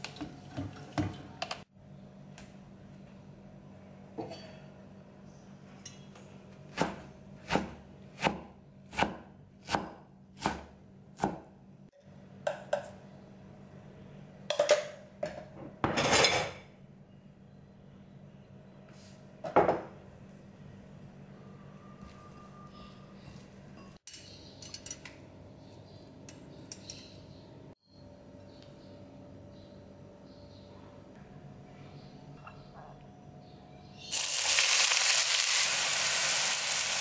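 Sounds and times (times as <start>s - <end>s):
knife chopping on wooden board: 6.7s - 11.5s.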